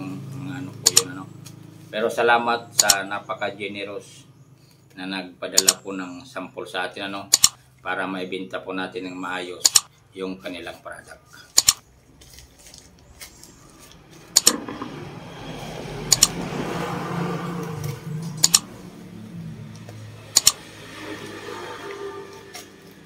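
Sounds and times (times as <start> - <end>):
scissors snipping: 0.8 - 1.1, 2.8 - 3.0, 5.6 - 5.8, 7.3 - 7.6, 9.6 - 9.9, 11.5 - 11.8, 16.1 - 16.4, 17.8 - 18.7, 19.8 - 20.6
plastic rustling and crinkling: 12.1 - 14.3.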